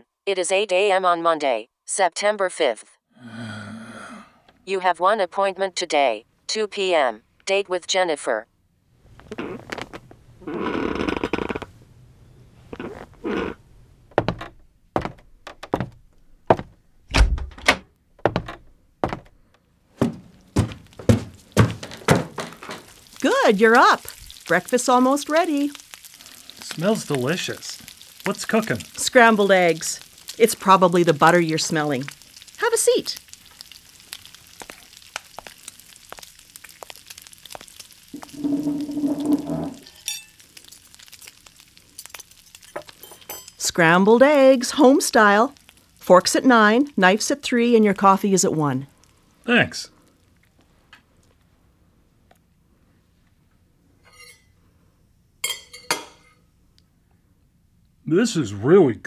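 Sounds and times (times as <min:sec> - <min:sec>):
thunks and knocks: 0:14.1 - 0:19.4, 0:20.0 - 0:22.8
eggs sizzling in a pan: 0:20.3 - 0:50.6
pitched scraping groan: 0:38.2 - 0:39.9.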